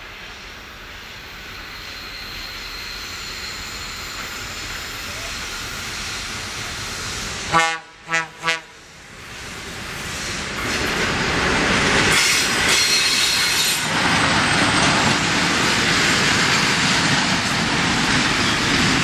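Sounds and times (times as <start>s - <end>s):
train rumble and rail hiss: 0.0s - 19.0s
locomotive horn blasts: 7.5s - 8.8s.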